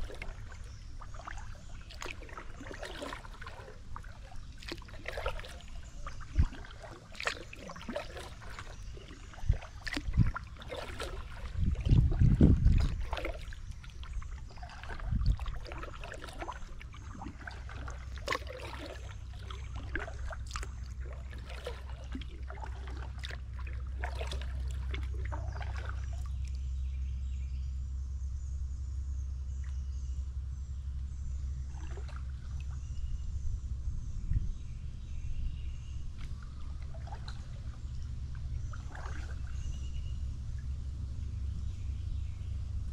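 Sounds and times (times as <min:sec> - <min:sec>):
paddle strokes splashing water: 0:00.0 - 0:26.6, 0:31.6 - 0:32.9, 0:36.1 - 0:42.1
steady low rumble: 0:00.0 - 0:42.9.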